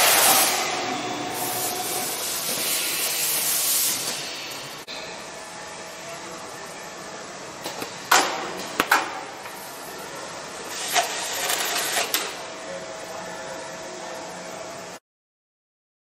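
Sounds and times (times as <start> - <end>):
hissing clattering machine action: 0.0 - 4.9
machine humming: 0.0 - 15.0.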